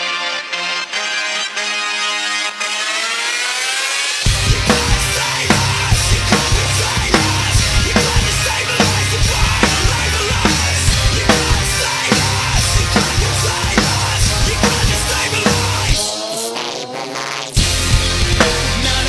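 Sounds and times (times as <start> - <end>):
recorded backing track: 0.0 - 19.0
drum kit playing rock beat: 4.2 - 16.4, 17.6 - 19.0.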